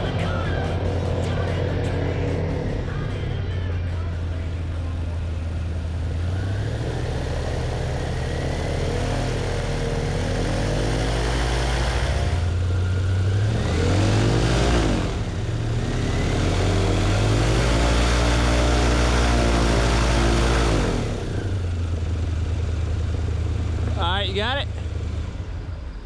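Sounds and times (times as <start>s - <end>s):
airboat engine and propeller: 16.1s - 25.6s.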